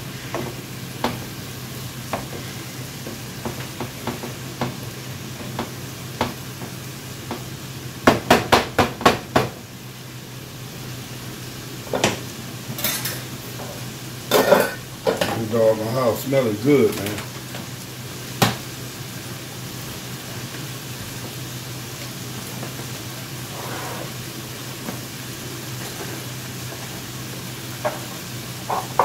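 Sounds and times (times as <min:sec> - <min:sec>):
corn sizzling in a skillet: 0:00.0 - 0:29.0
spoon knocking against pan: 0:28.7 - 0:29.0
spoon scraping and tapping pan: 0:28.7 - 0:29.0.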